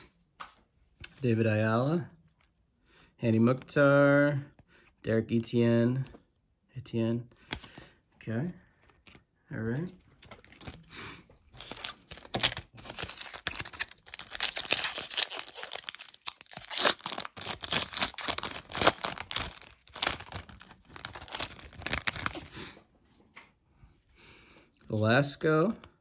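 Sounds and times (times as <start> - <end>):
foil wrapper tearing and crinkling: 11.5 - 22.6.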